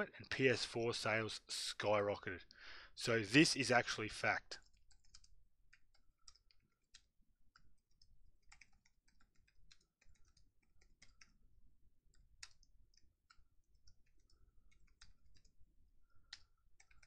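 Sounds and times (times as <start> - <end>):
keyboard keys clicking: 4.6 - 11.4, 12.0 - 15.5, 16.1 - 17.0.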